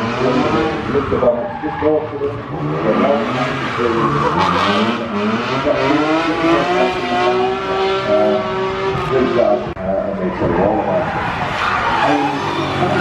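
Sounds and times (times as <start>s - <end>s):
car engine revving hard: 2.5s - 9.7s.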